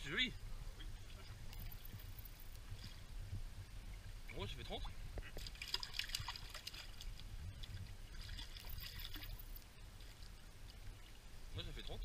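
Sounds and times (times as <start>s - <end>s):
fish splashing in water: 5.3s - 7.2s, 8.1s - 10.2s.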